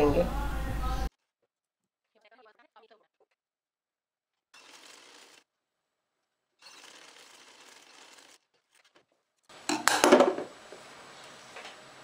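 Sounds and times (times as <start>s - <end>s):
sewing machine stitching: 4.5s - 5.5s, 6.6s - 9.0s
loud clatter of knocks: 9.7s - 10.5s.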